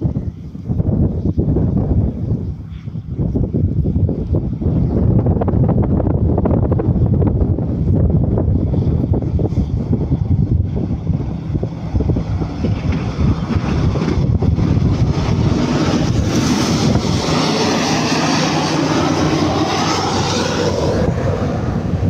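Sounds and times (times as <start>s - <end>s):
diesel engine passing by: 7.7s - 22.0s.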